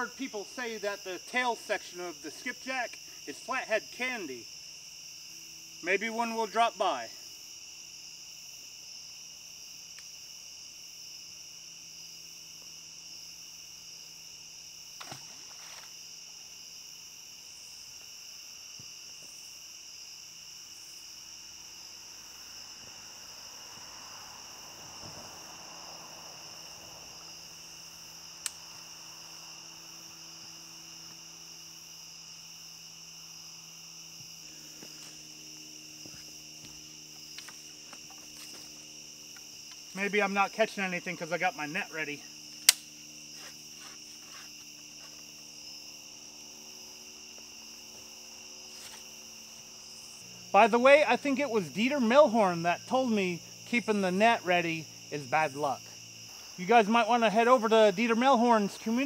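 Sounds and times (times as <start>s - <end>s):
crickets and insects trilling: 0.0s - 59.0s
sharp click: 42.6s - 42.9s.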